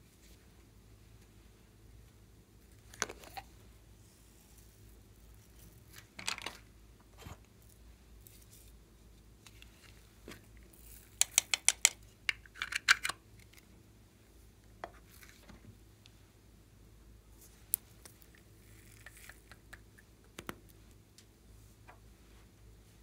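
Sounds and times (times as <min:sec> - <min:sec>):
sharp plastic clicks: 0:11.2 - 0:13.2.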